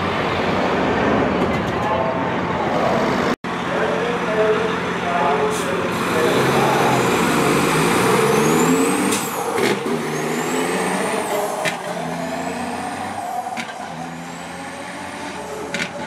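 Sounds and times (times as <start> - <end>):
diesel truck engine accelerating: 0.0 - 16.0.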